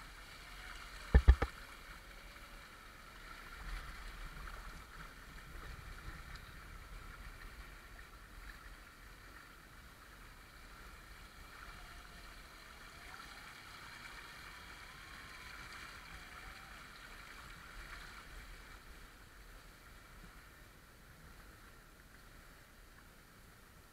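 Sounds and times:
stream water rushing and splashing: 0.0 - 23.9.

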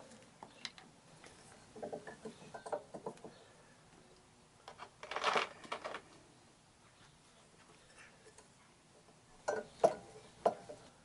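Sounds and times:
clicks and knocks of parts handled: 4.6 - 6.2.

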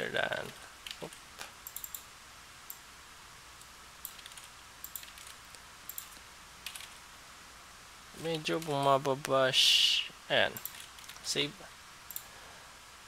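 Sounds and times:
faint keyboard typing: 0.3 - 2.8, 4.0 - 7.0, 8.2 - 9.4, 10.5 - 11.4, 12.0 - 12.3.

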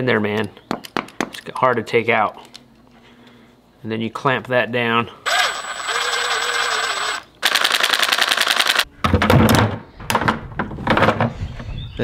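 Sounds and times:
impact driver spinning and rattling: 5.3 - 8.9.

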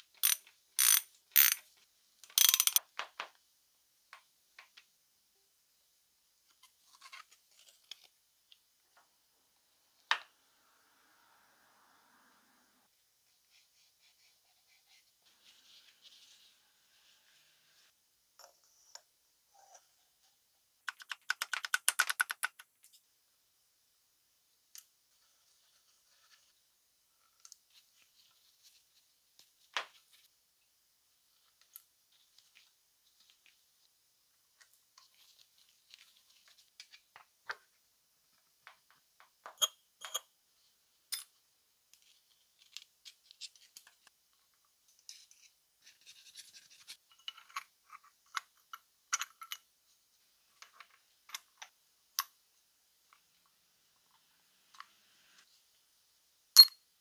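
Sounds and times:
metal parts clicking and scraping: 0.2 - 2.8.

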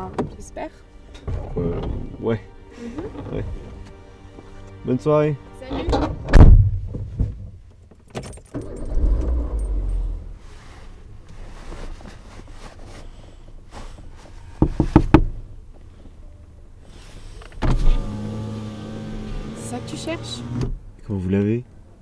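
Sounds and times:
car engine and road rumble: 5.6 - 22.0.

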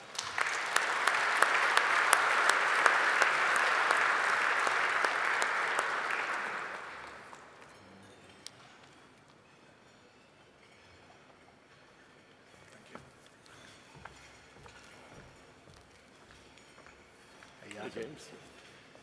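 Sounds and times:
audience applause: 0.0 - 7.6.

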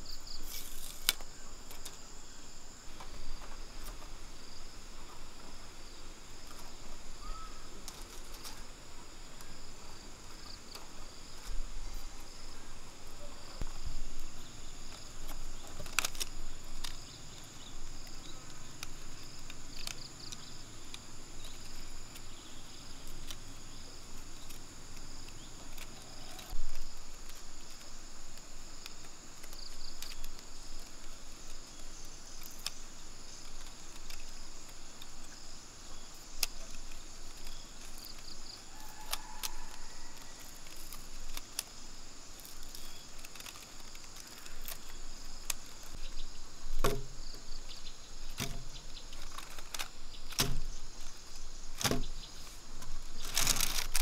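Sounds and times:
crickets chirping: 0.0 - 54.0
bamboo strips clicking: 0.4 - 2.0, 14.8 - 47.3, 48.2 - 51.1, 51.7 - 54.0.

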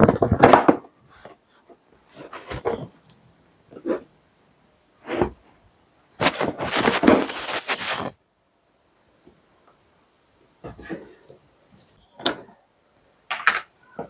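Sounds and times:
plastic clattering: 13.3 - 14.0.

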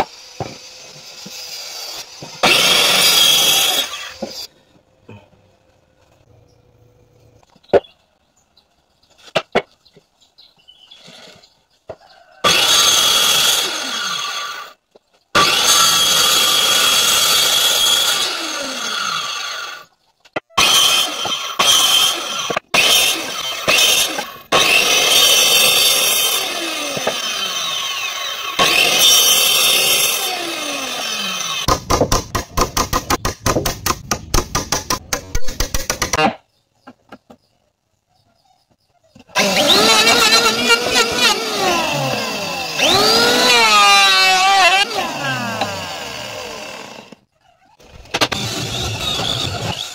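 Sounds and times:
circular saw cutting wood: 0.0 - 4.5, 12.4 - 14.8, 15.4 - 19.9, 20.6 - 36.3, 39.2 - 49.9.

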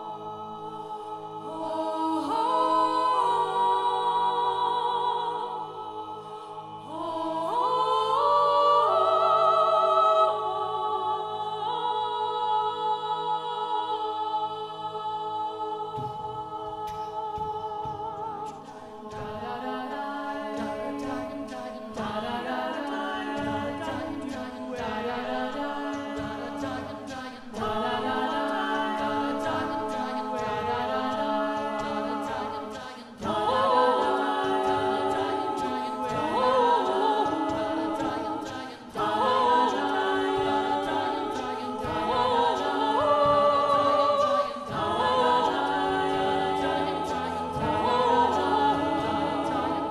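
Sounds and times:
a cappella ensemble singing: 0.0 - 49.9
woman singing lead: 0.0 - 49.9.

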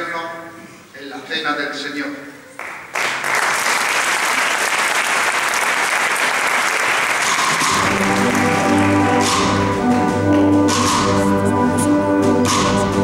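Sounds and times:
audience applauding: 2.5 - 10.5
brass band playing low chords: 7.2 - 13.0.

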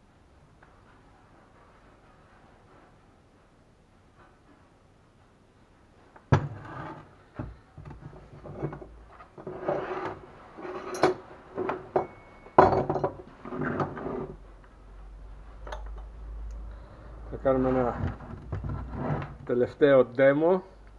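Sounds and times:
metal parts knocking on wooden workbench: 6.3 - 14.2
metal parts clattering and scraping: 8.0 - 14.3.

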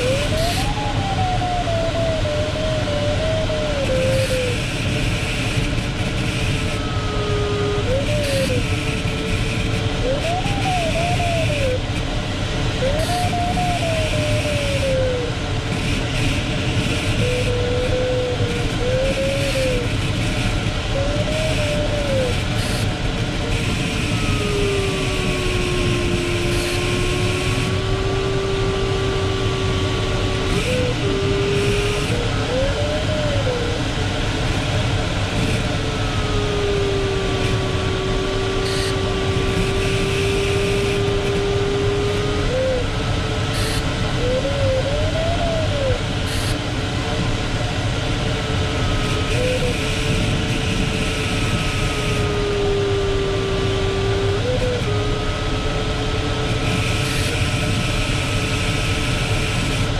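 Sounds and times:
cockpit airflow noise: 0.0 - 59.9
electronic variometer tone: 3.8 - 12.1, 15.7 - 33.8, 34.5 - 42.9, 43.5 - 45.4.

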